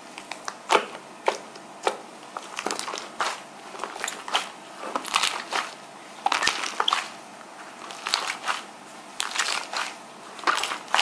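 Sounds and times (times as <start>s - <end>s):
slime squeezed wet crackling: 0.7s - 7.2s, 7.8s - 11.0s.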